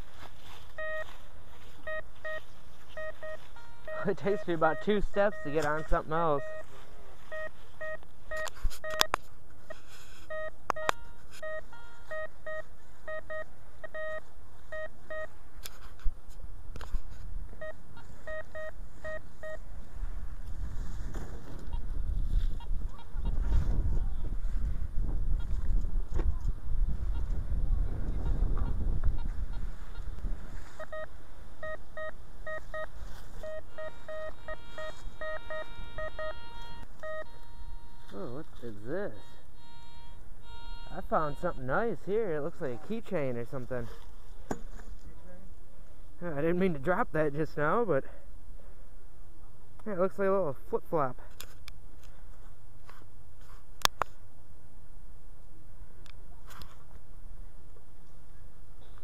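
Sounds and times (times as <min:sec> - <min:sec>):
metal detector beeping: 0:00.0 - 0:15.4, 0:17.5 - 0:19.7, 0:30.7 - 0:42.3.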